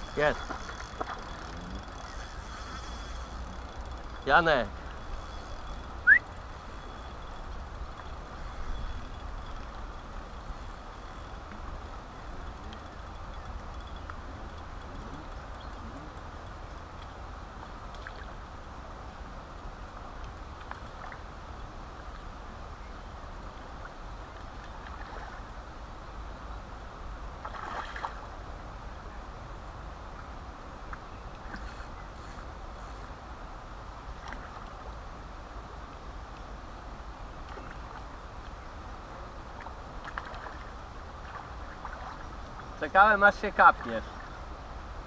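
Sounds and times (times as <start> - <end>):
river water rushing: 6.0 - 7.0, 37.0 - 45.0.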